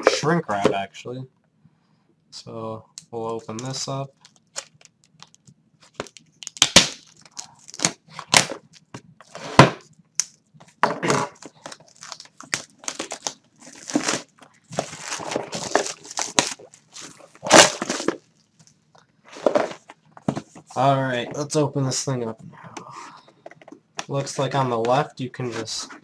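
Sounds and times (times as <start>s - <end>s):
plastic shrink wrap tearing: 4.1s - 8.9s, 11.4s - 18.4s.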